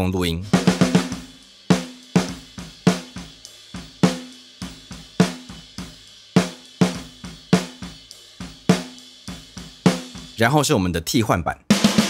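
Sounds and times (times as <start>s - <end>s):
cymbals: 0.4s - 10.4s
hi-hat: 0.6s - 10.4s.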